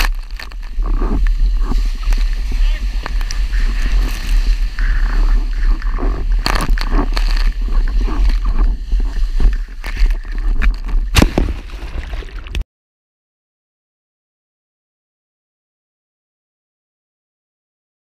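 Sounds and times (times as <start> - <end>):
wind buffeting microphone: 0.0 - 12.1
water rushing and slapping: 0.0 - 12.6
sharp water splashes: 11.0 - 12.6.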